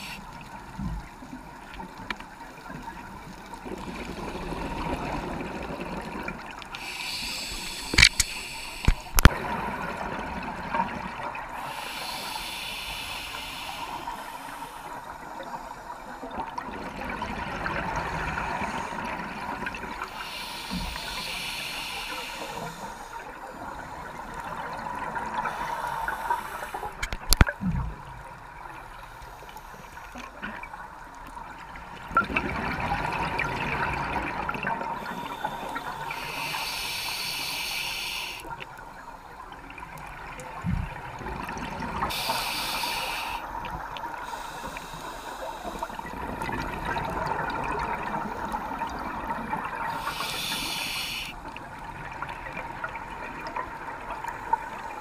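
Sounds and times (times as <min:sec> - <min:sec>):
diver breathing through regulator: 0:06.8 - 0:09.3, 0:11.6 - 0:15.1, 0:20.1 - 0:23.3, 0:25.4 - 0:27.0, 0:35.0 - 0:38.5, 0:42.0 - 0:46.2, 0:49.8 - 0:51.4.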